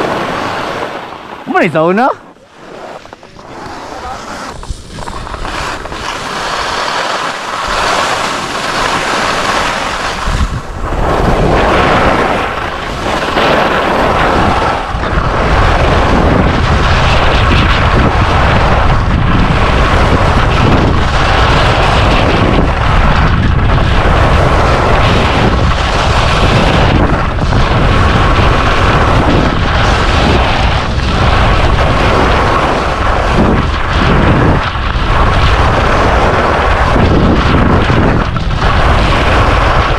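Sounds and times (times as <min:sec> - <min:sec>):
skis scraping on hard snow: 0:00.0 - 0:39.9
wind rushing over microphone: 0:00.0 - 0:39.9.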